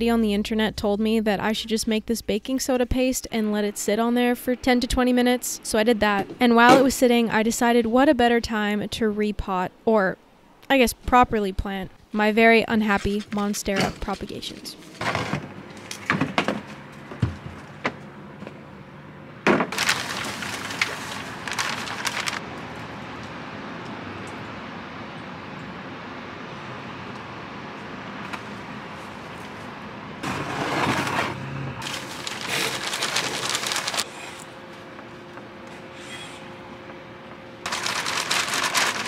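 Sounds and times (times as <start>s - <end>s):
potting mix bag crinkling: 19.7s - 22.4s, 31.8s - 34.4s, 37.6s - 39.0s.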